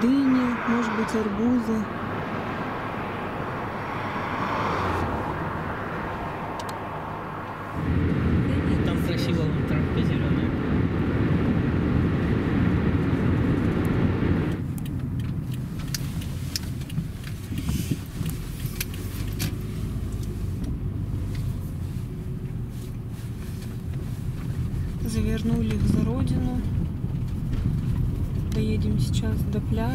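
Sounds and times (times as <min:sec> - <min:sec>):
car interior low rumble: 0:00.0 - 0:29.9
tyre and wind rush: 0:00.6 - 0:14.7.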